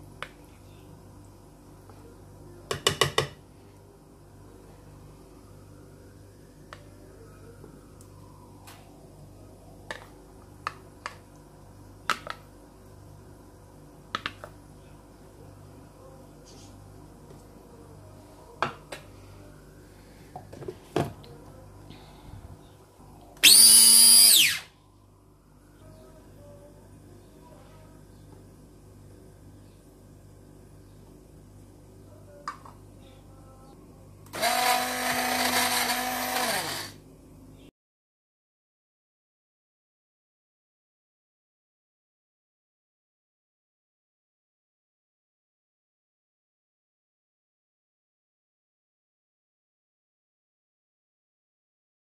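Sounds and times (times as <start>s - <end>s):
low steady hum: 0.0s - 37.7s
hand blender motor whine: 23.4s - 24.7s, 34.4s - 37.0s.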